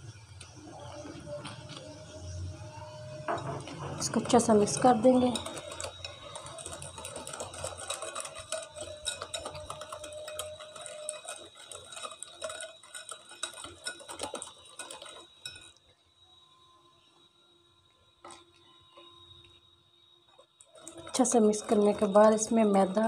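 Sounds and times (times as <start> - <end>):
wire whisk scraping glass bowl: 3.3 - 15.8, 20.3 - 23.0.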